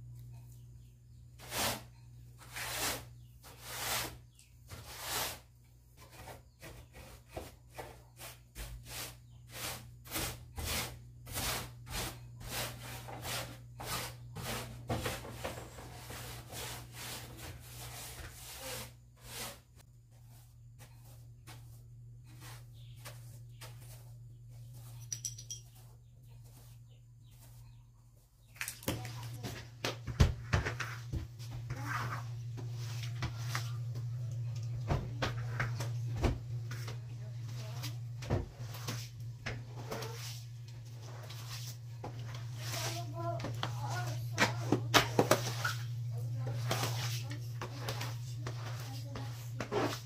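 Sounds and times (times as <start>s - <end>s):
broom sweeping tiled floor: 0.1s - 50.0s.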